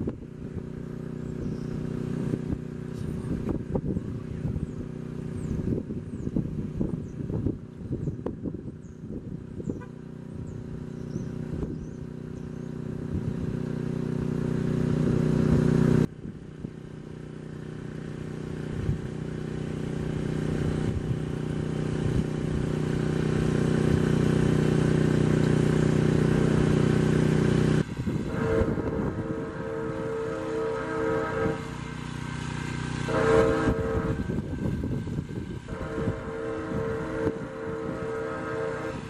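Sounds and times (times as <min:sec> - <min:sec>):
diesel locomotive engines droning: 0:00.0 - 0:39.0
locomotive horn: 0:09.6 - 0:10.3, 0:28.2 - 0:34.6, 0:35.6 - 0:39.0.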